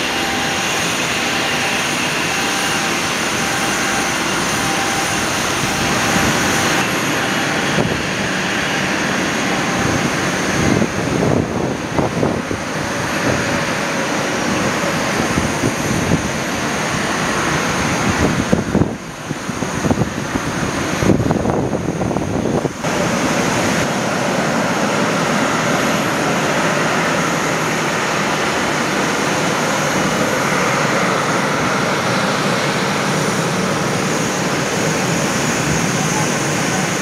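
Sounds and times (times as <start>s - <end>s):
faint high whine: 0.0s - 20.0s
jet engines rushing hiss: 0.0s - 37.0s
wind buffeting microphone: 0.0s - 37.0s.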